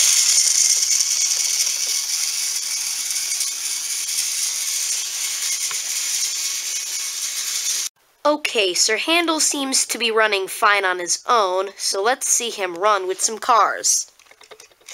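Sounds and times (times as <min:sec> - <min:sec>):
toy train motor whirring: 0:00.0 - 0:07.9.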